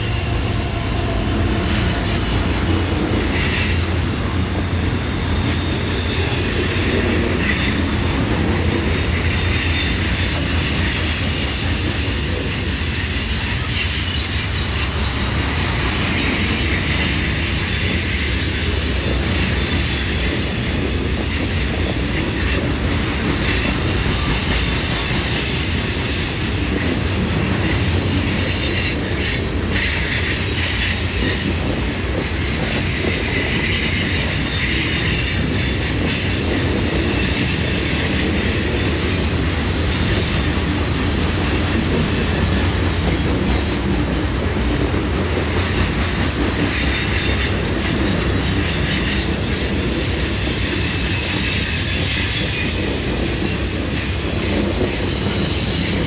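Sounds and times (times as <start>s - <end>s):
high-pitched wheel squeal: 0.0s - 3.9s
train cars clattering over rails: 0.0s - 56.0s.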